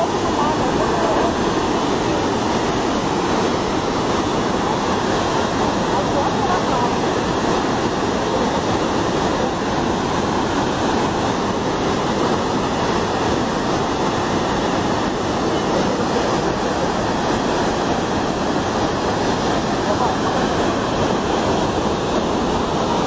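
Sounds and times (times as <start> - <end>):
floodwater rushing: 0.0 - 23.0.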